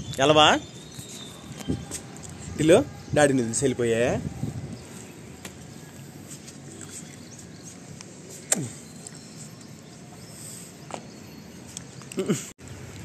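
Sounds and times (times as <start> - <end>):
wind buffeting microphone: 0.0 - 5.7.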